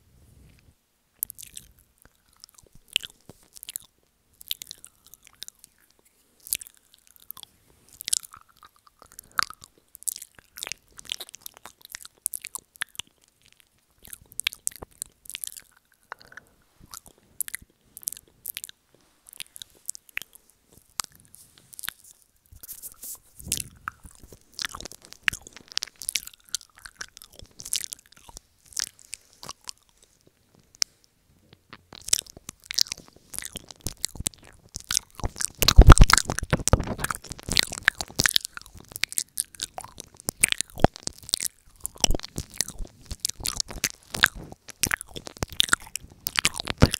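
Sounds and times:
lip smacks: 1.2 - 46.9
tongue clicks: 1.2 - 46.9
wet sucking sounds: 14.0 - 31.1, 32.0 - 46.9.

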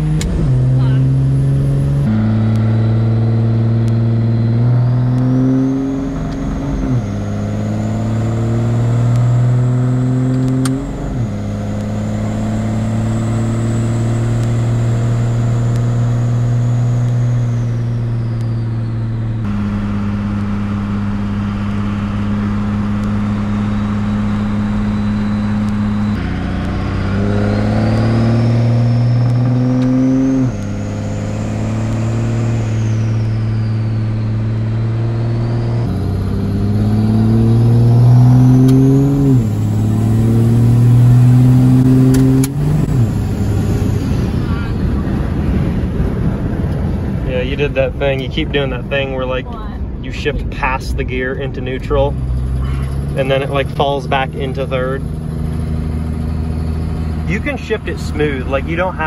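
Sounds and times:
diesel truck engine accelerating: 0.0 - 59.0
turbo whistle: 23.2 - 26.3.

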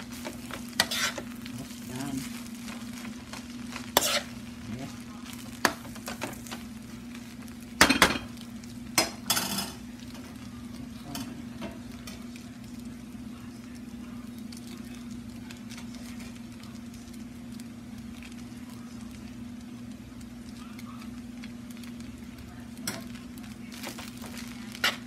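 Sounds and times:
spatula scraping a wok: 0.0 - 4.6
constant low hum: 0.0 - 25.0
noodles sizzling: 0.0 - 25.0.

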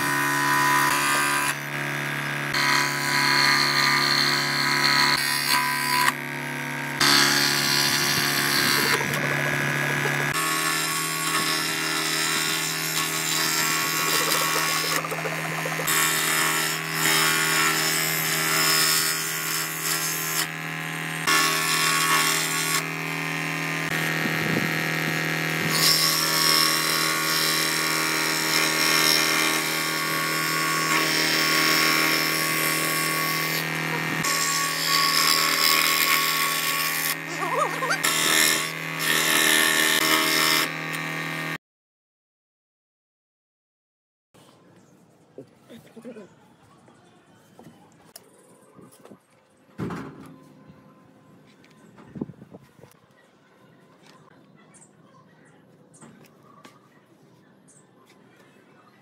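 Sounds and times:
scroll saw motor hum: 0.0 - 41.6
saw blade rasping in wood: 7.0 - 20.6, 23.8 - 41.0.

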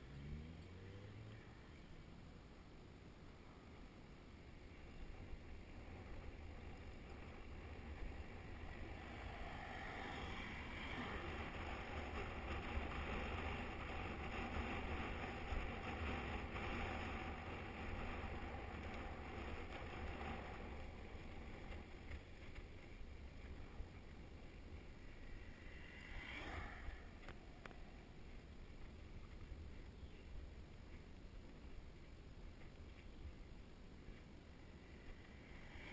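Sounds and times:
bicycle tyres on tarmac: 0.0 - 35.9
wind rushing over microphone: 4.9 - 30.6.

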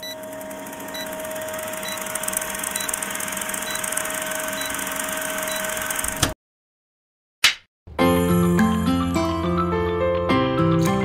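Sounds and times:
film projector whirr: 0.0 - 6.4.

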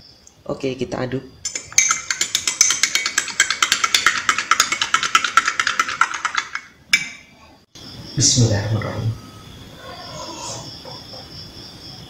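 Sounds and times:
spoon stirring in a glass mug: 1.5 - 7.2
spoon clinking against glass: 1.5 - 7.3.

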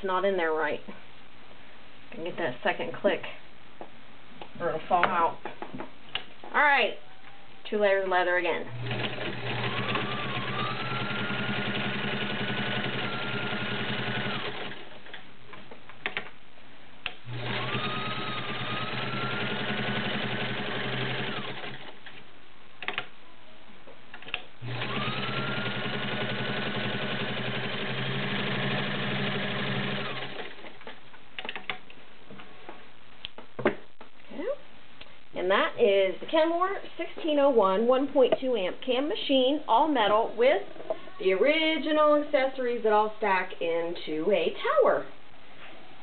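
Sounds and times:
sewing machine motor whine: 8.7 - 14.8, 17.3 - 21.9, 24.6 - 30.7.

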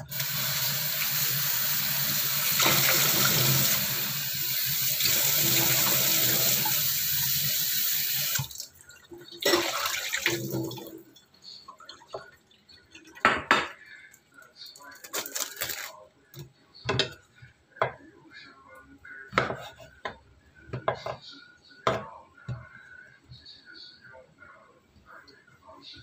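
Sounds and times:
tap water running into sink: 0.0 - 8.7, 9.3 - 10.9
water splashes: 8.4 - 11.0.

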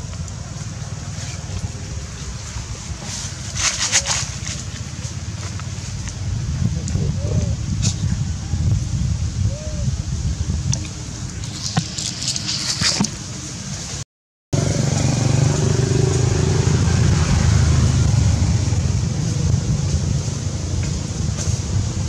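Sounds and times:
vehicle engine rumble: 0.0 - 14.0, 14.6 - 22.0
light rustling: 10.8 - 13.5.

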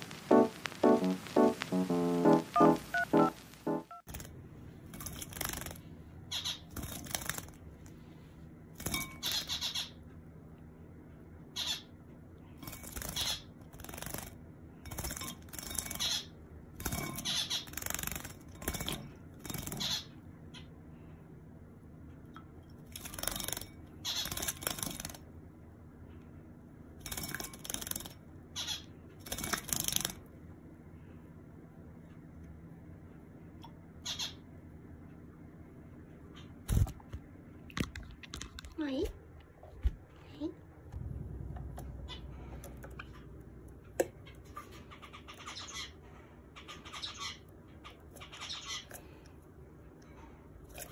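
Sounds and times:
small-bird chirps: 6.3 - 6.8, 9.2 - 10.1, 11.5 - 12.0, 17.0 - 18.1, 33.9 - 34.6, 44.2 - 49.2.

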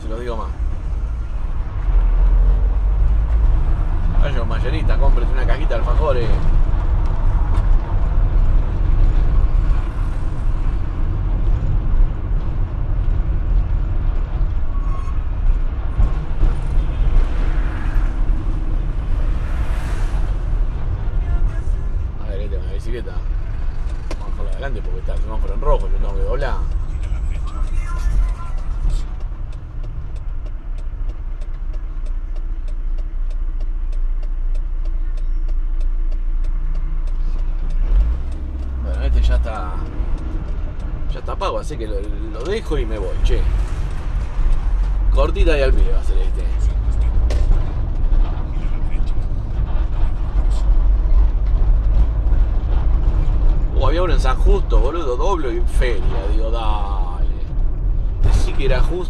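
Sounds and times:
van engine and road rumble: 0.0 - 59.0
turn signal clicking: 23.3 - 45.1.

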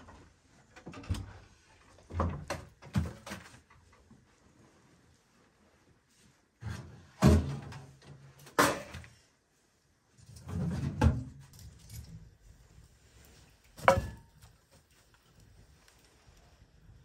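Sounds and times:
metal and firewood knocking: 13.8 - 14.4.

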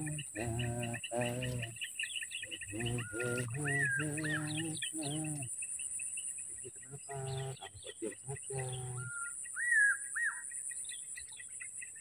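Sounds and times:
man speaking: 0.0 - 1.8, 2.6 - 5.5, 6.6 - 9.1
high-pitched insect drone: 0.0 - 1.9, 2.5 - 6.1, 6.7 - 9.2
small birds chirping: 0.0 - 12.0.

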